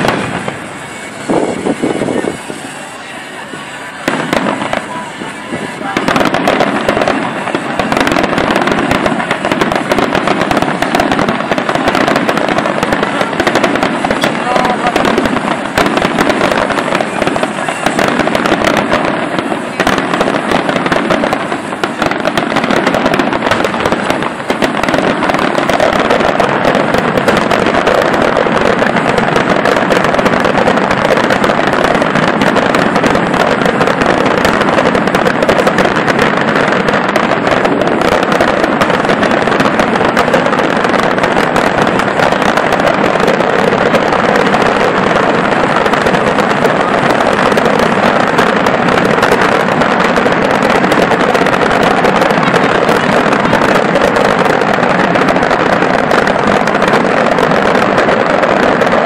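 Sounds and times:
fireworks bangs and crackles: 0:00.0 - 0:59.0.

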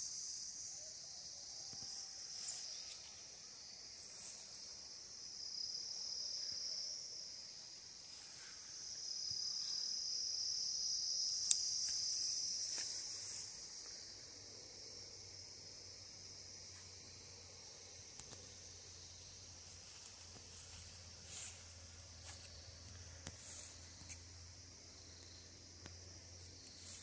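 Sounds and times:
insects chorus: 0:00.0 - 0:27.0.

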